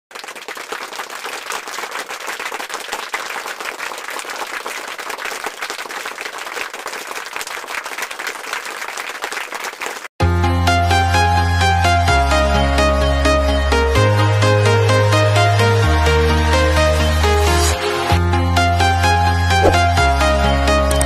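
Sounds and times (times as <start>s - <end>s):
crowd applauding: 0.1s - 10.1s.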